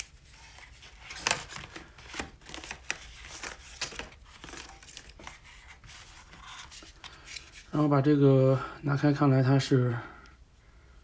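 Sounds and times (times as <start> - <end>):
paper and plastic crinkling: 0.0 - 7.8.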